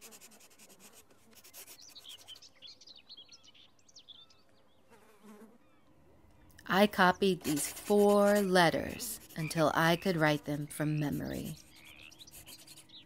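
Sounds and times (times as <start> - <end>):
chalk scratching on a wall: 0.0 - 2.4, 7.3 - 9.6, 12.1 - 13.0
small birds chirping: 1.1 - 13.0.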